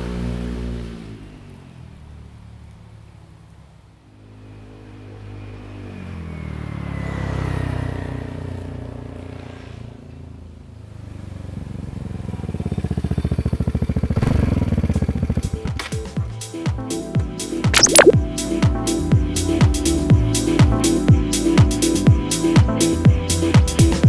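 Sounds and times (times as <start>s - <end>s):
scooter engine passing by: 4.2s - 15.4s.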